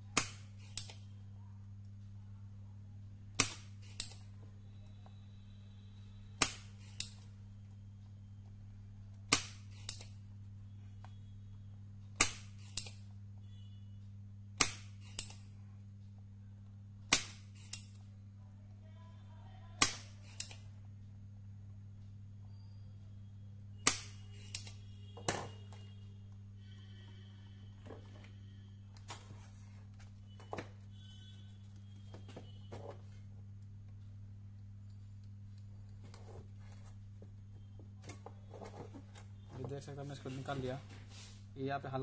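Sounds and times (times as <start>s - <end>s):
desoldering pump snap and click: 0.2s - 1.0s, 3.4s - 4.3s, 6.4s - 7.3s, 9.3s - 10.2s, 12.2s - 13.0s, 14.6s - 15.4s, 17.1s - 18.0s, 19.8s - 20.7s, 23.8s - 25.4s.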